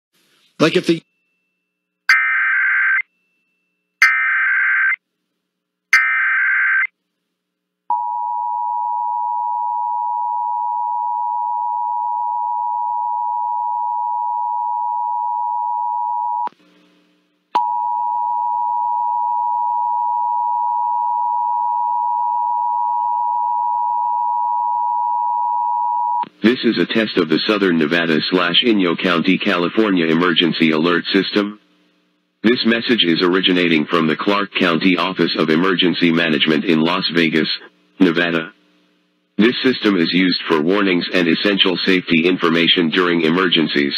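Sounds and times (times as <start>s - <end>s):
data bursts: 2.1s - 3.1s, 4.0s - 5.0s, 6.0s - 6.9s.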